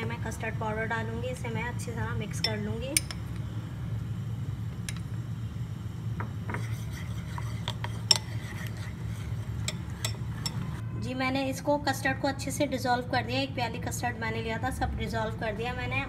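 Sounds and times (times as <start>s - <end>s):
spoon scraping ceramic bowl: 6.5s - 10.8s.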